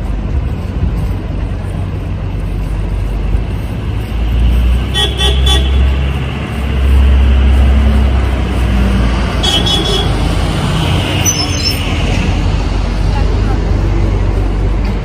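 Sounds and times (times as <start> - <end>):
low rumble of passing vehicles: 0.0 - 15.0
car horn honking: 4.9 - 6.0, 9.4 - 10.4.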